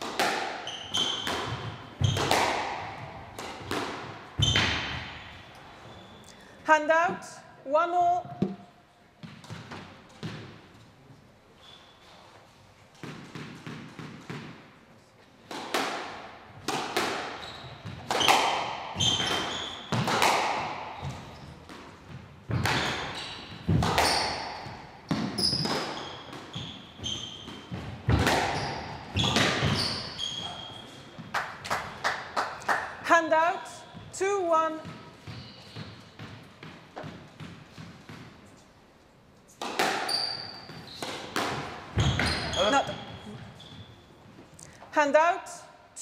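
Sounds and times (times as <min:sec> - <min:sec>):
squash ball hits echoing: 0:00.0 - 0:05.3, 0:08.2 - 0:10.6, 0:13.0 - 0:14.7, 0:15.5 - 0:32.9, 0:34.8 - 0:38.4, 0:39.6 - 0:43.5
shoe squeaks on court floor: 0:00.6 - 0:02.4, 0:04.4 - 0:06.4, 0:11.6 - 0:12.4, 0:17.3 - 0:20.1, 0:22.5 - 0:31.2, 0:35.2 - 0:36.3, 0:39.9 - 0:44.3.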